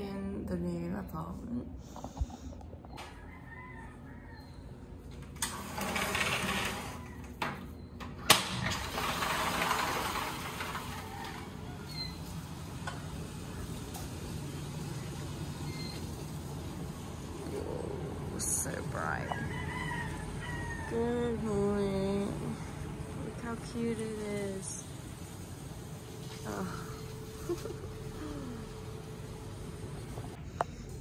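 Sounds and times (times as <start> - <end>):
outdoor ambience: 0.0 - 31.0
sliding door rolling: 5.2 - 18.4, 22.6 - 30.4.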